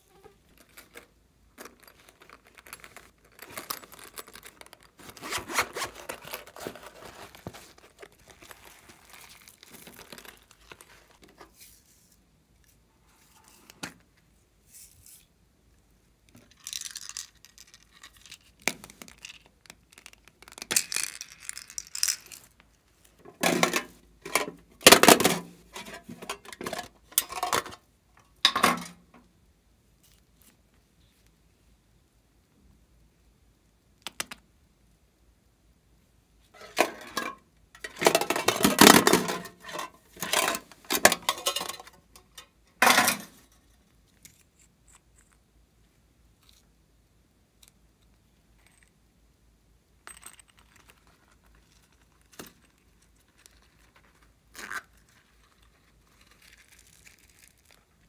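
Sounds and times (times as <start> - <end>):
plastic rustling and scraping: 0.0 - 14.0, 36.5 - 44.7, 50.8 - 58.0.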